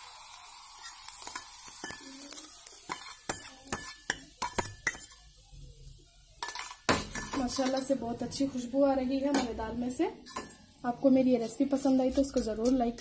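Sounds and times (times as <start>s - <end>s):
oil sizzling: 0.0s - 13.0s
spoon scraping and tapping steel: 0.8s - 5.2s, 6.4s - 8.0s, 10.2s - 10.7s, 12.2s - 13.0s.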